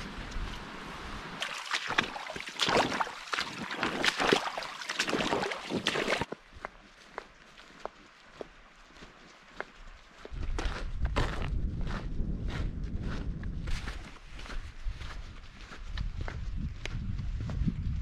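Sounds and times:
water splashing and sloshing: 0.3 - 6.4.

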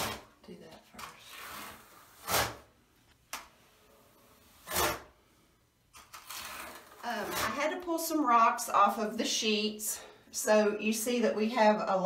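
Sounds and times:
trowel scraping mortar: 1.3 - 2.7, 4.5 - 5.1, 6.1 - 7.8.

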